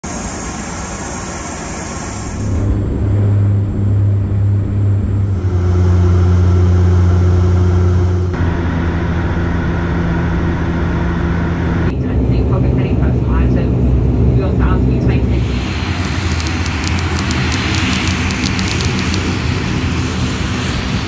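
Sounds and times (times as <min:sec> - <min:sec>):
propeller engine drone in cabin: 0:01.0 - 0:11.9
airport apron noise: 0:16.0 - 0:19.2
high hiss: 0:16.0 - 0:19.3.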